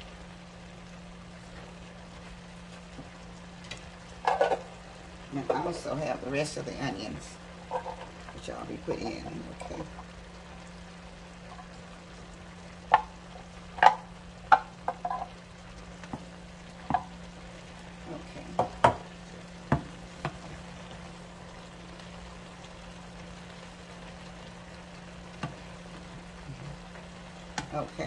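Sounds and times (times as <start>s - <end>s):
faint sizzle: 0.0s - 28.0s
utensil clinking and scraping skillet: 4.2s - 4.7s, 5.4s - 6.0s, 7.7s - 9.4s, 13.8s - 15.4s.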